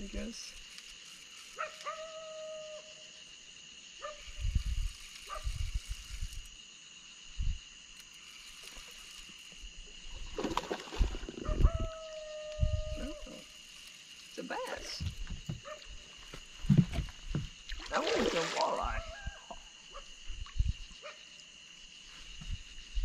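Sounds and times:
thumps and knocks on boat: 14.9 - 17.6.

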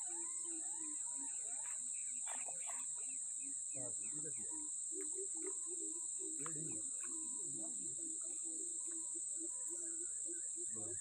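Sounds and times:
crickets chirping: 0.0 - 11.0.

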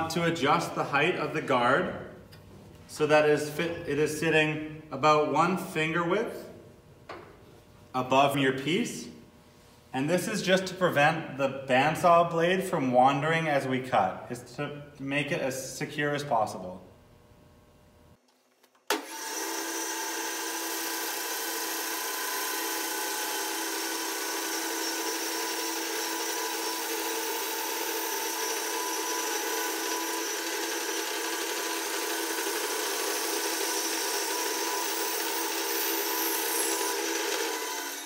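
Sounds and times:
bandsaw cutting wood: 18.9 - 38.0.

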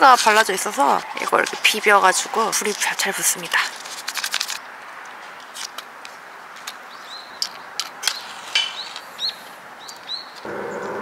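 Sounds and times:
bird chirps: 8.1 - 11.0.

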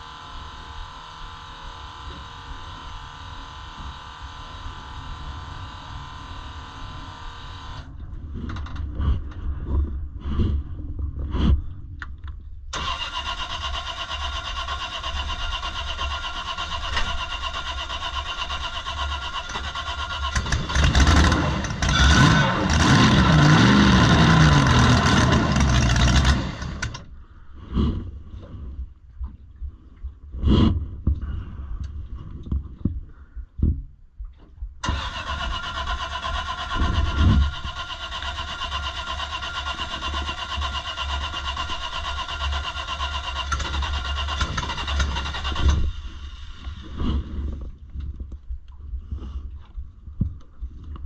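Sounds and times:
engine starter cranking: 12.8 - 27.1, 34.8 - 46.6.

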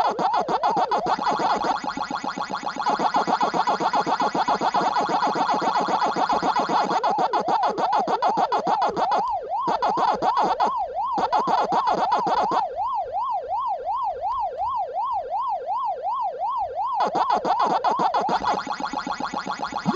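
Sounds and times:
fast clicking beat: 0.0 - 12.6, 17.0 - 19.9
electronic siren-like warble: 0.0 - 19.9.

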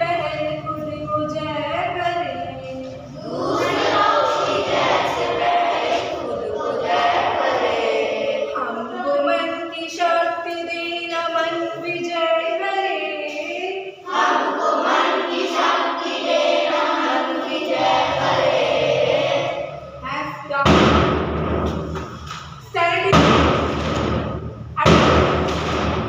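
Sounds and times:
children singing a prayer: 1.8 - 9.8, 11.6 - 20.0.

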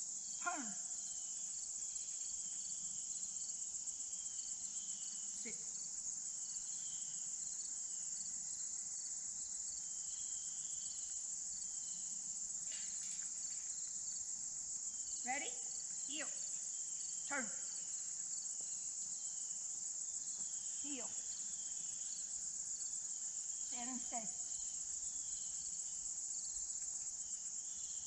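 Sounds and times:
insect chorus shrill: 0.2 - 7.6, 14.9 - 28.0.

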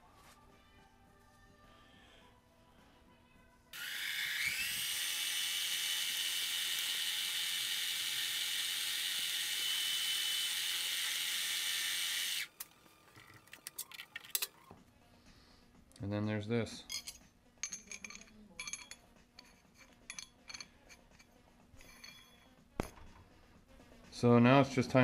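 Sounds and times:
lathe motor whining: 3.8 - 12.7.

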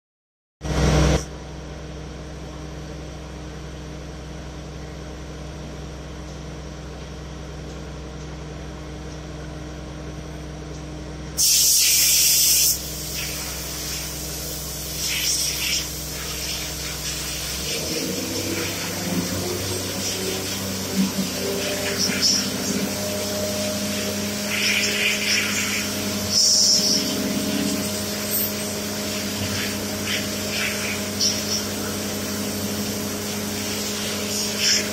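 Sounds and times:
workshop machinery humming: 0.6 - 34.9
air blow gun hissing: 11.4 - 34.9.

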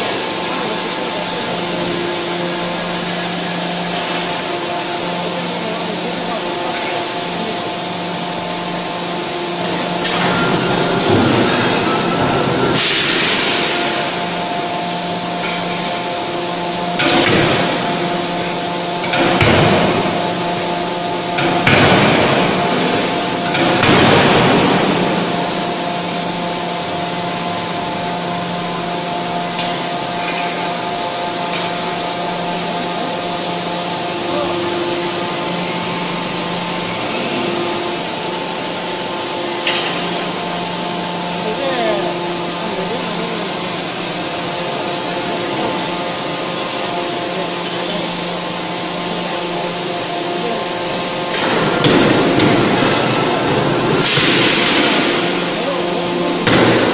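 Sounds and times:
forge machinery humming: 0.0 - 56.9
forging hammer striking hot steel: 56.3 - 56.9.

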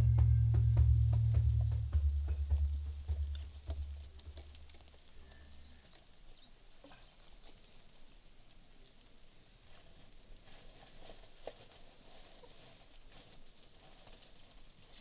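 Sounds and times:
low musical drone: 0.0 - 3.0
percussion hits: 0.0 - 4.7
faint outdoor ambience: 0.0 - 15.0.

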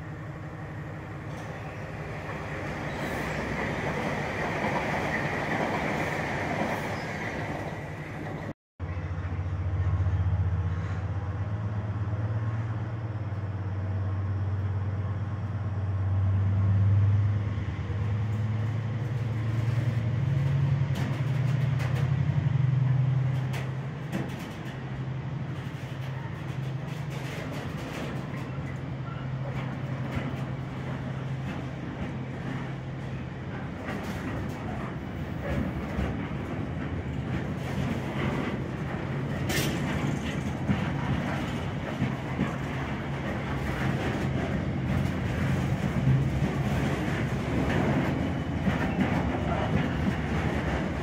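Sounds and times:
train wagons rumbling past: 0.0 - 51.0
wheel clicks over rail joints: 33.5 - 51.0.

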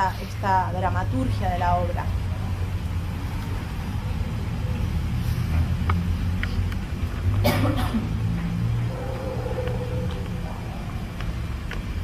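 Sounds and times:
low rumbling drone: 8.6 - 12.0.

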